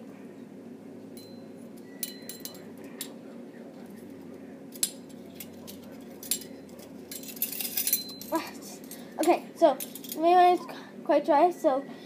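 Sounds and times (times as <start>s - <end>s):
metal measuring spoons jangling: 2.0s - 2.7s, 4.8s - 10.2s.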